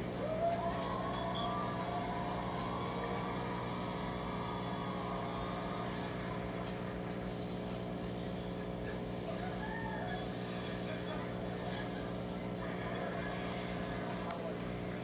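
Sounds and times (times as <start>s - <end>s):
aquarium air pump humming: 0.0s - 15.0s
faint wavering high tone: 1.0s - 2.5s.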